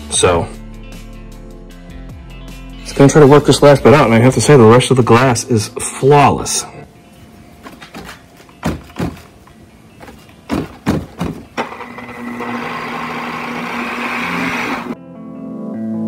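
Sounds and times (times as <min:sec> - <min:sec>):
knocks: 0:07.7 - 0:09.3, 0:10.0 - 0:11.5
polisher motor humming: 0:11.6 - 0:15.0.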